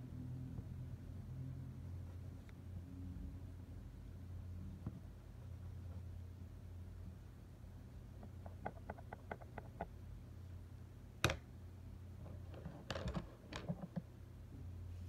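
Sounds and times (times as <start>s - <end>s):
pencils clicking and tapping: 8.2s - 9.9s, 12.5s - 14.0s.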